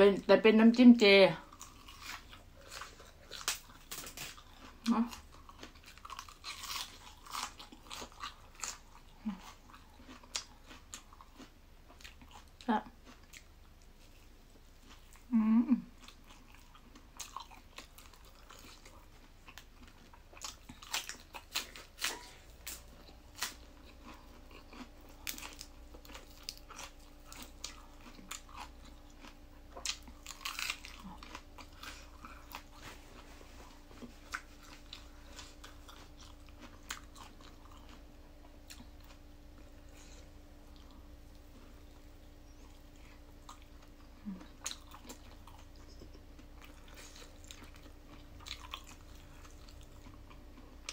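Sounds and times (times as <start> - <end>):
faint steady hum: 0.0 - 50.9
biting and chewing food: 1.4 - 50.9
person humming: 15.3 - 15.9.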